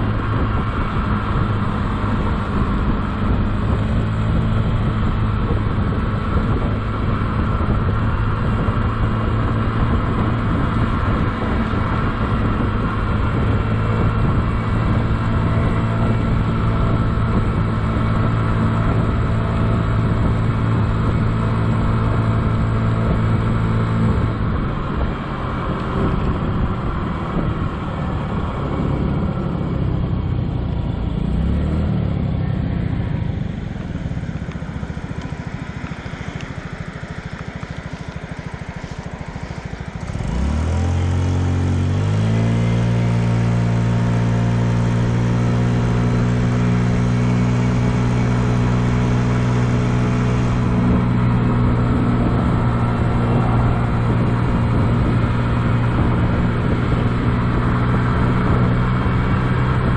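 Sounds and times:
scooter engine running: 0.0 - 59.9.

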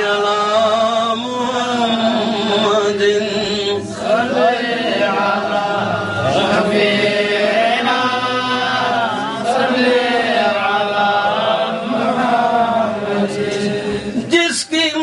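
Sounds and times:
man chanting into a microphone: 0.0 - 4.0, 13.5 - 15.0.

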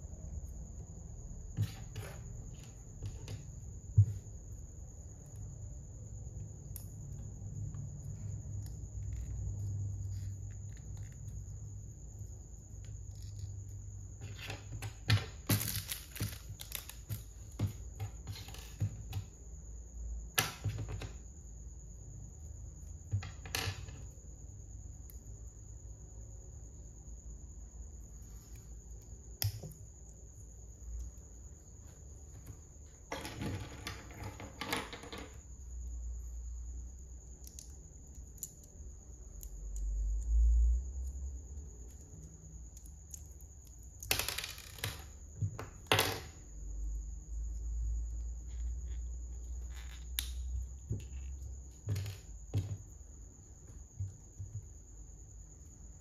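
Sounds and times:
plastic bricks clicking on table: 42.8 - 46.4.

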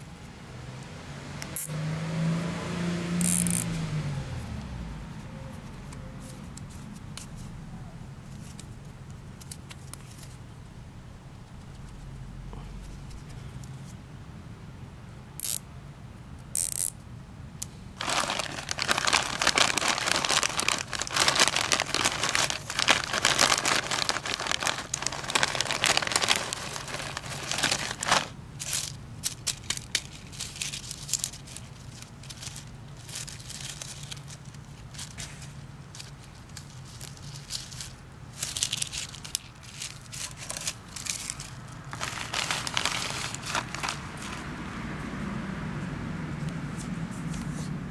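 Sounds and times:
plastic bag crinkling and rustling: 18.0 - 44.5.

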